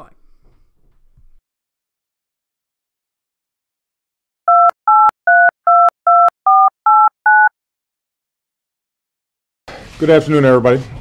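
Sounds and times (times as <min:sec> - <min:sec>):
touch-tone beeps: 0:04.5 - 0:07.5.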